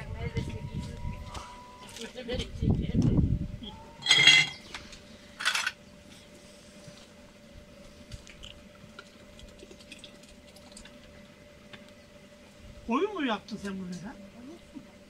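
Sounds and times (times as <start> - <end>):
glass jars clinking: 4.0 - 4.6
metal ladle clinking and scraping: 4.0 - 4.6.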